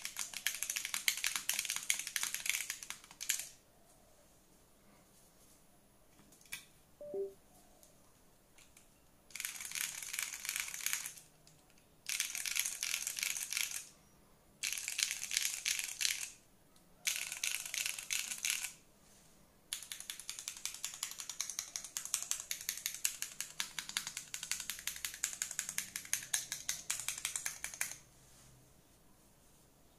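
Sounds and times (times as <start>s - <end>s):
fast typing on mechanical keyboard: 0.0s - 3.6s, 9.3s - 13.9s, 14.6s - 16.4s, 17.0s - 18.8s, 19.7s - 28.0s.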